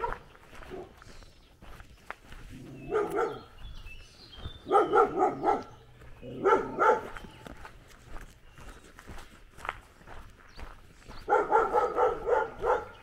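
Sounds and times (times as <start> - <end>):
dog barking: 0.0 - 1.0, 2.8 - 3.6, 4.6 - 7.3, 11.2 - 13.0.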